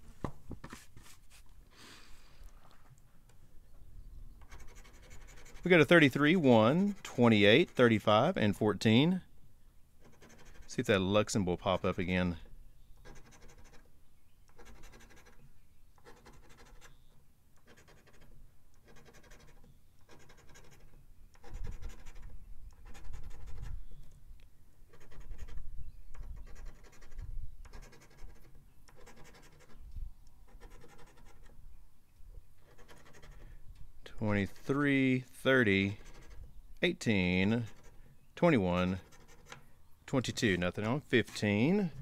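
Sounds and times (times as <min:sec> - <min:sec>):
coin scraping scratch card: 0:04.4 - 0:08.0, 0:10.0 - 0:10.9, 0:13.0 - 0:13.9, 0:14.5 - 0:15.4, 0:16.0 - 0:23.8, 0:24.9 - 0:29.8, 0:30.5 - 0:31.6, 0:32.6 - 0:33.5, 0:35.5 - 0:39.6.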